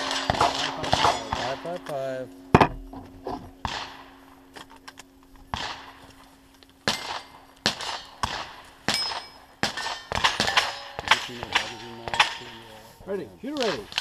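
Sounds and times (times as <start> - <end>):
rifle shots: 0.0 - 1.8, 3.6 - 4.2, 5.5 - 6.0, 6.8 - 12.6
struck steel ringing: 0.0 - 3.0, 8.9 - 12.6.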